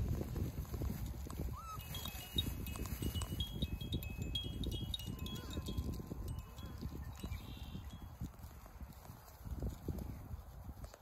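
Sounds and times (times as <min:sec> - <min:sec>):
short high ringing tones: 0:01.6 - 0:08.2.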